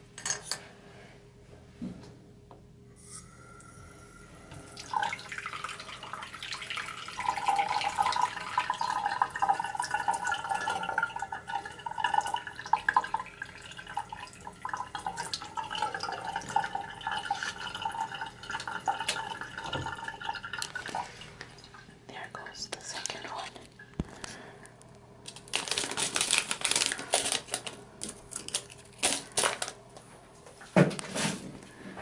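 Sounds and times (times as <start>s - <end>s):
tap water running into sink: 4.8s - 21.0s.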